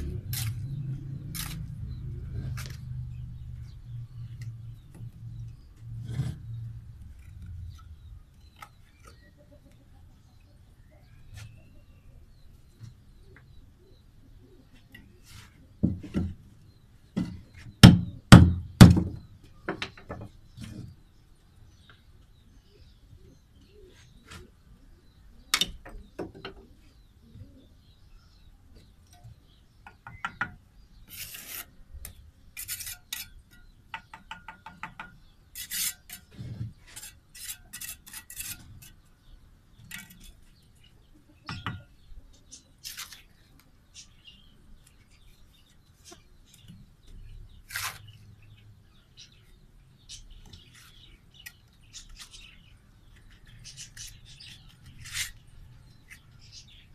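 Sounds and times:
trowel scraping and knocking pan: 32.6s - 33.7s, 35.6s - 39.0s.

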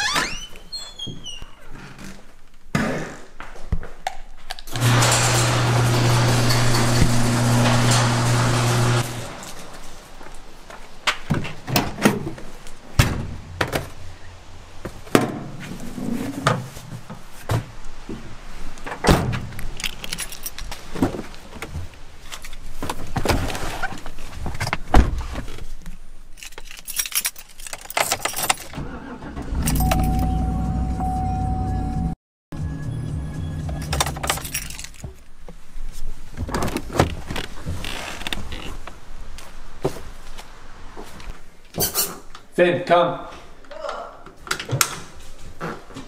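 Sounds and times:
knocks and clunks: 11.1s - 14.0s
keys jangling: 19.8s - 20.7s, 26.4s - 28.7s, 33.9s - 35.0s
steady electronic tone: 29.8s - 33.8s.

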